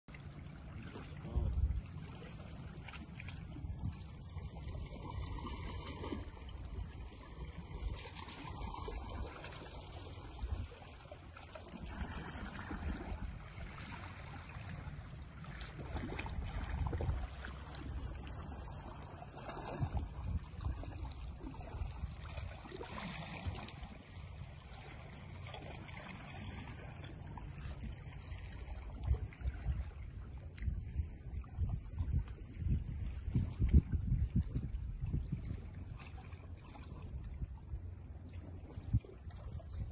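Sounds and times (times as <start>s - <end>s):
wind on microphone: 0.9s - 2.4s, 15.5s - 23.9s, 27.6s - 37.8s.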